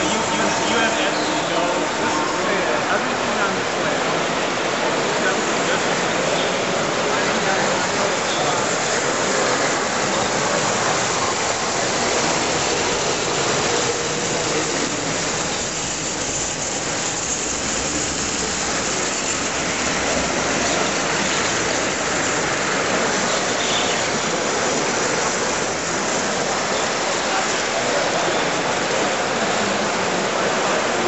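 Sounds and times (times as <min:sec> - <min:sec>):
large hall background noise: 0:00.0 - 0:31.0
toy trains clattering on metal track: 0:07.3 - 0:23.4.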